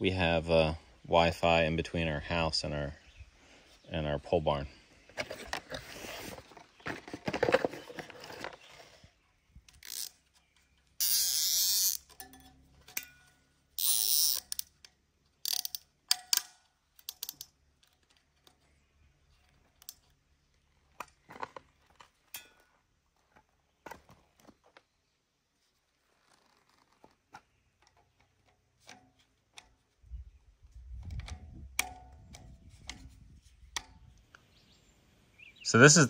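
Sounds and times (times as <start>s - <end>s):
zip ties zipping: 11.0s - 12.0s, 13.8s - 14.5s, 26.1s - 27.1s.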